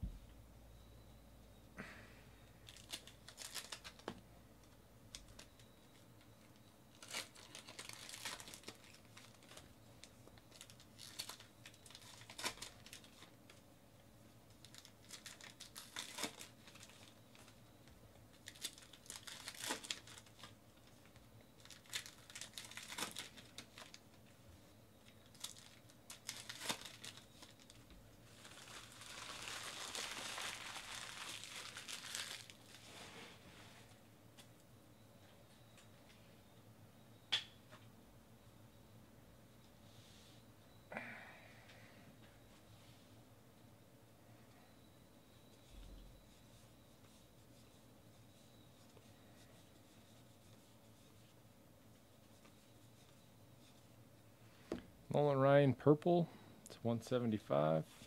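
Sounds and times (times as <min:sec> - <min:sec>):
wrappers crinkling and tearing: 0:02.7 - 0:04.1, 0:06.9 - 0:09.7, 0:10.4 - 0:13.3, 0:14.6 - 0:17.6, 0:18.3 - 0:24.0, 0:25.2 - 0:32.9.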